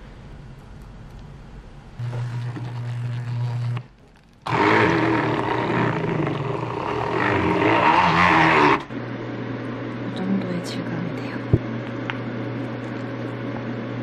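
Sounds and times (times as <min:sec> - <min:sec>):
immersion blender grinding: 0:02.0 - 0:08.9.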